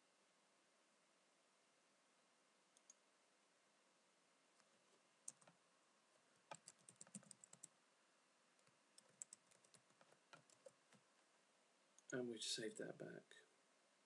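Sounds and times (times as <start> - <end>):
typing on computer keyboard: 5.3 - 5.6, 6.5 - 7.7, 8.6 - 10.8.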